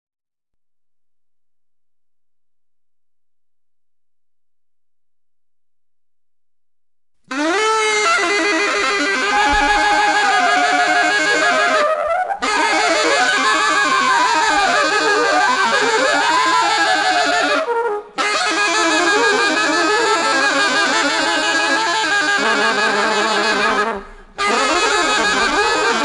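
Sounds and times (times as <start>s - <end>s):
reed wind instrument playing jazz: 7.3s - 26.0s.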